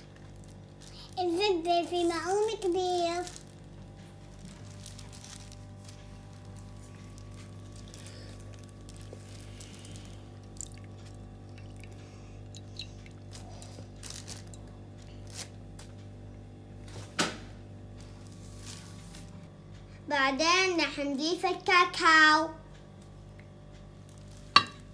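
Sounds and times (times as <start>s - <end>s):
steady low hum: 0.0s - 24.9s.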